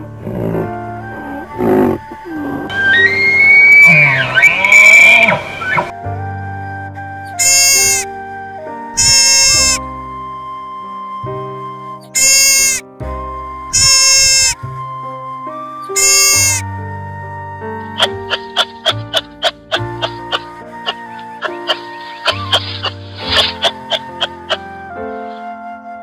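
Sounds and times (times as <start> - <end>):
background music with held notes: 0.0 - 26.0
short bleats: 7.4 - 8.0, 9.0 - 9.8, 12.2 - 12.8, 13.7 - 14.6, 16.0 - 16.6.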